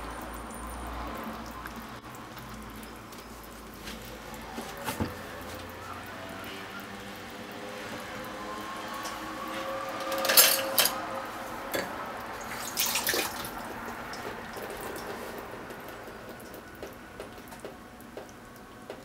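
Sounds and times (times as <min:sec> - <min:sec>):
water running: 0:00.0 - 0:19.0
water splashing: 0:11.6 - 0:18.8.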